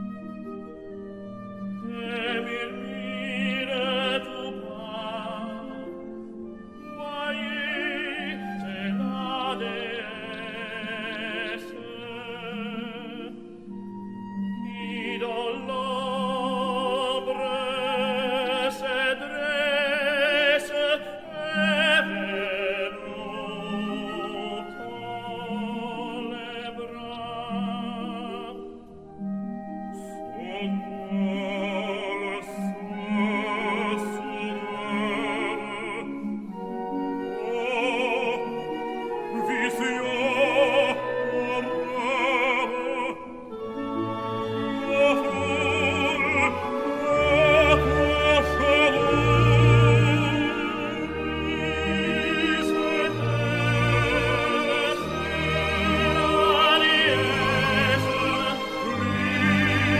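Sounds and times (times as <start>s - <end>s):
operatic singing with vibrato: 0.0s - 59.9s
orchestral accompaniment: 0.0s - 59.9s.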